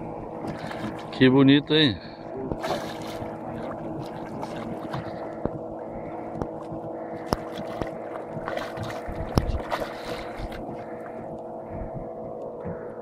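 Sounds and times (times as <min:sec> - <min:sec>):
boat motor running: 0:00.0 - 0:13.0
fish splashing and knocking: 0:02.5 - 0:11.1.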